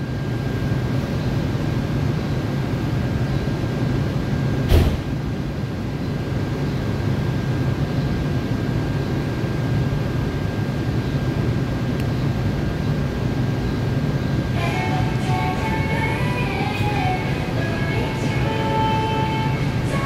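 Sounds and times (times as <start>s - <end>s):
subway car ventilation hum: 0.0s - 20.0s
thin high whine: 0.0s - 20.0s
sharp knock: 4.7s - 5.1s.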